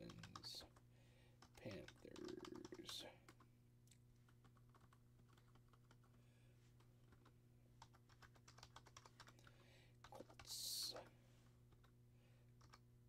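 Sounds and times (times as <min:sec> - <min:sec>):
computer keyboard typing: 0:00.0 - 0:00.8, 0:01.4 - 0:03.5, 0:04.2 - 0:06.2, 0:07.0 - 0:10.7, 0:12.6 - 0:12.8
low electrical hum: 0:00.0 - 0:13.0.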